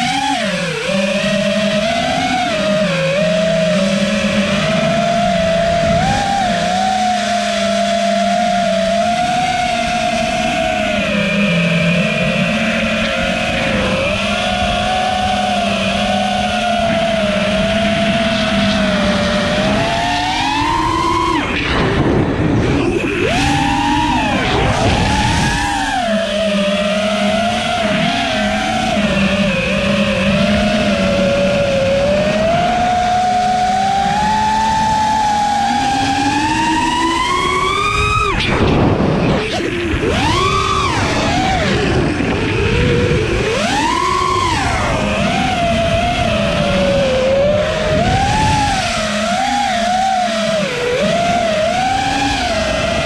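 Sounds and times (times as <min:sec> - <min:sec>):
drone motors whining: 0:00.0 - 0:53.0
loud rush of air: 0:21.6 - 0:26.1, 0:38.2 - 0:43.3.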